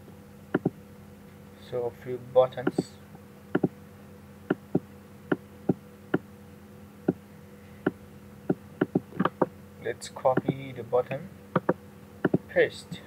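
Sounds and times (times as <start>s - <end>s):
low electrical hum: 0.0s - 13.0s
computer mouse clicks: 8.5s - 9.5s, 11.6s - 12.4s.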